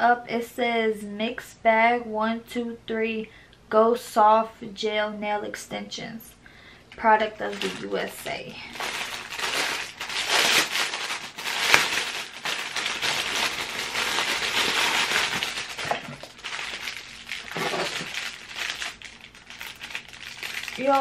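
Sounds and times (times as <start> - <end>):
plastic packaging crinkling: 7.3 - 21.0.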